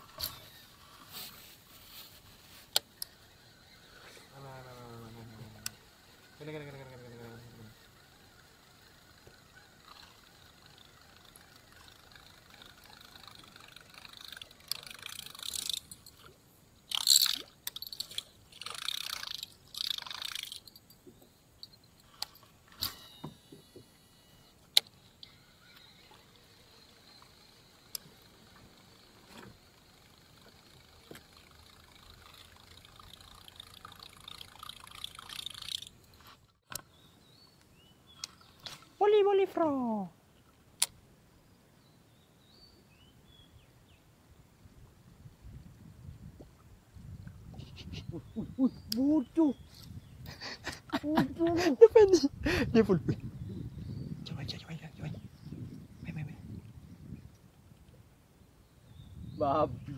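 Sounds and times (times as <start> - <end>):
water splashing and trickling: 11.6 - 20.9, 30.6 - 36.5.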